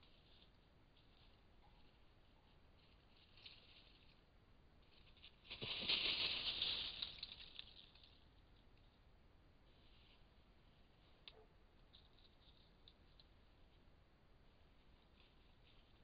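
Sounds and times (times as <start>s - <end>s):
dry leaves rustling and crackling: 0.0s - 8.6s.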